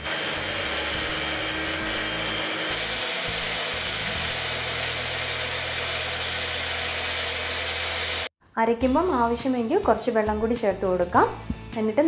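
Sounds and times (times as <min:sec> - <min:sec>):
electric blender whirring: 0:00.0 - 0:08.3.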